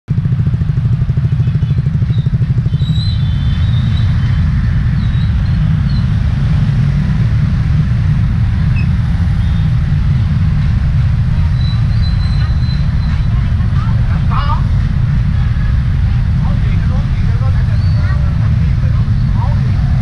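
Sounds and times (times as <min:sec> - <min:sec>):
motorbike engine: 0:00.1 - 0:20.0
road rumble: 0:00.1 - 0:20.0.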